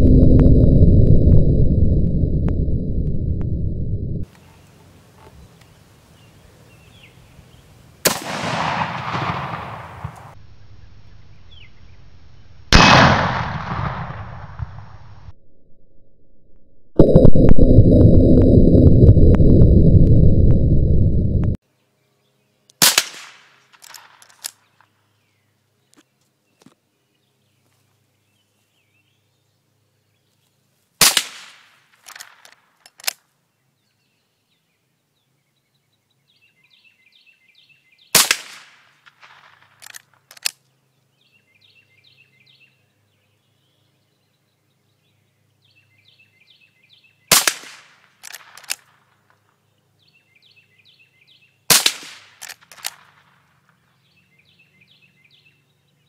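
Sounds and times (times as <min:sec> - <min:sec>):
rifle shots: 0:08.1 - 0:10.4, 0:12.7 - 0:14.4, 0:51.7 - 0:53.4
bird singing: 0:11.2 - 0:12.1, 0:33.6 - 0:38.1, 0:40.9 - 0:47.3, 0:49.6 - 0:51.6, 0:53.8 - 0:56.0.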